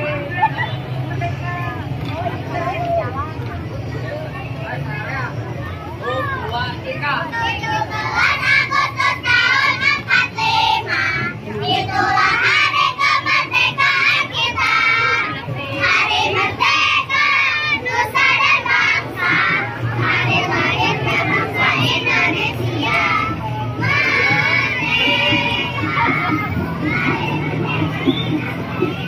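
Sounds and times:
crowd voices: 0.0 - 29.0
children singing: 7.7 - 29.0.

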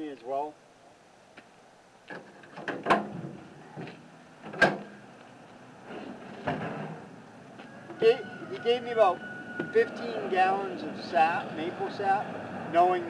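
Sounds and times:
tailgate metal clunks: 2.1 - 5.0.

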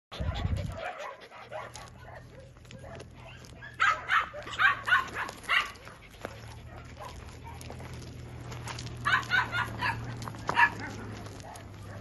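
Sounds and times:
puppy yipping: 0.2 - 7.7, 9.0 - 12.0.

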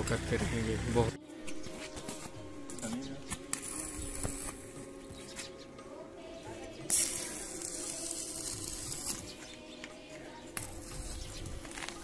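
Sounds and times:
welding arc hissing and crackling: 6.9 - 9.3.

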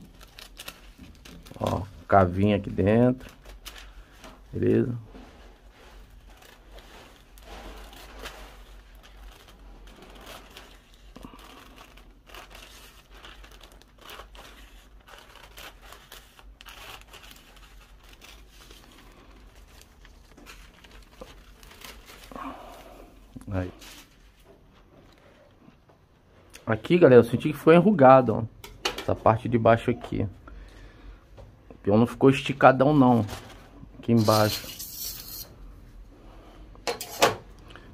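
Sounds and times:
paper rustling and crinkling: 0.0 - 25.6, 32.9 - 35.4.

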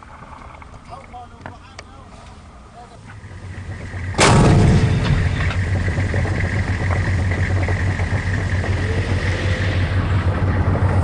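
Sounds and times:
tank engine running: 2.4 - 11.0
tank gun blast: 4.1 - 6.8.

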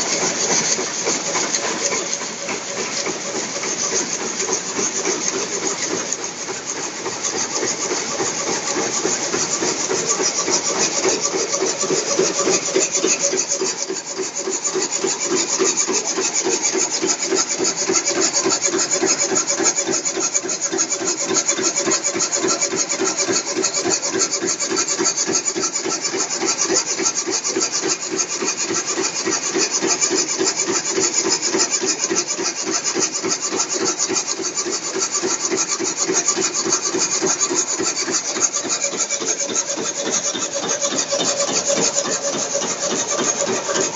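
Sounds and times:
loom clattering: 0.0 - 23.6, 32.7 - 43.9.

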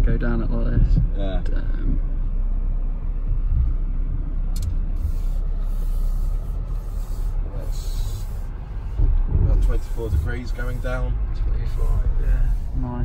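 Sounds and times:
low rumble inside car cabin: 0.0 - 13.0.

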